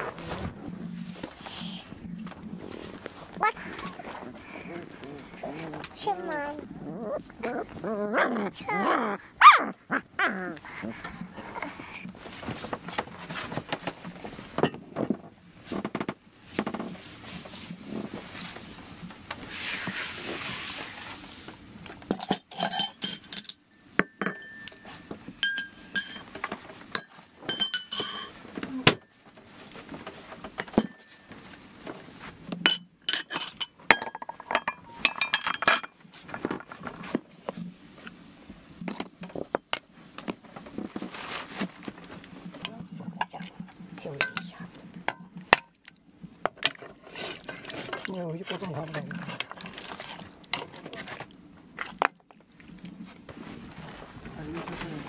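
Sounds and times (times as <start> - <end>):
dishes and glass jars clinking: 22.1 - 28.4, 30.6 - 31.3, 32.6 - 36.0, 44.0 - 45.8.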